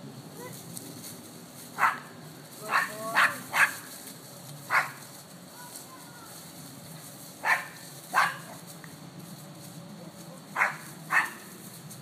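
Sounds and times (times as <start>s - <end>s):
small dog barking: 1.8s - 2.1s, 2.7s - 3.9s, 4.7s - 5.0s, 7.4s - 8.6s, 10.6s - 11.5s.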